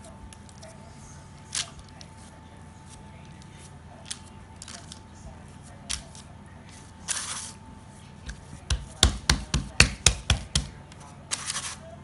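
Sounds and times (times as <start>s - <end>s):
baking paper rustling: 0.0s - 12.0s
hand patting dough: 8.1s - 11.2s.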